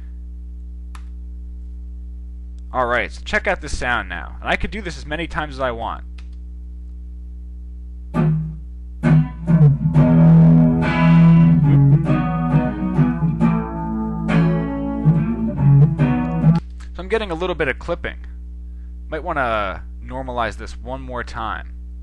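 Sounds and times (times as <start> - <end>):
steady low hum: 0.0 - 22.0
plucked guitar notes and chords: 8.1 - 16.6.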